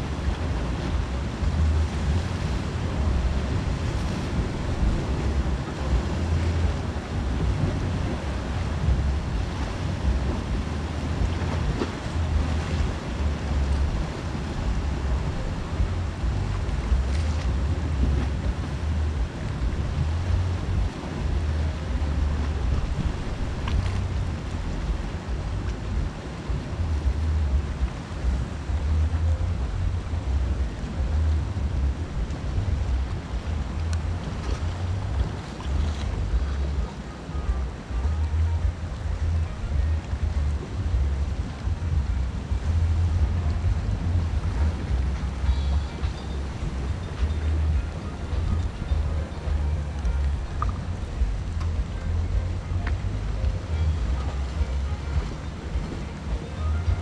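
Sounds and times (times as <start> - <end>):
sea surf: 0.0 - 57.0
wind buffeting microphone: 0.0 - 57.0.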